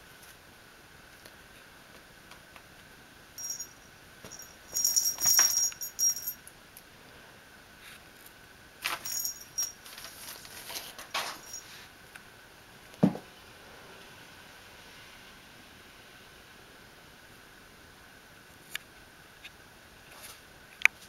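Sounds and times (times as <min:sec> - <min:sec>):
small jingle bell jingling: 0:03.4 - 0:06.4, 0:08.9 - 0:10.3, 0:11.3 - 0:11.7.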